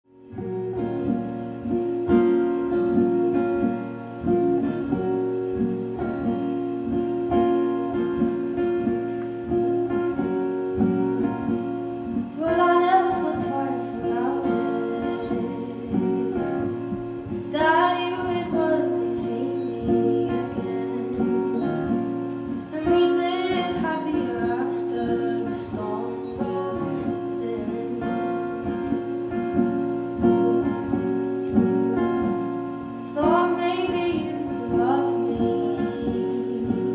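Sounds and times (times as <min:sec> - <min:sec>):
acoustic guitar strumming: 0:00.1 - 0:36.9
woman singing: 0:09.6 - 0:36.9.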